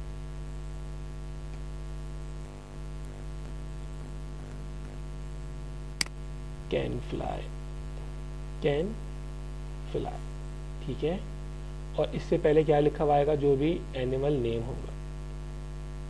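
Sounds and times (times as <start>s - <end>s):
electrical mains hum: 0.0s - 16.0s
sharp click: 6.0s - 6.2s.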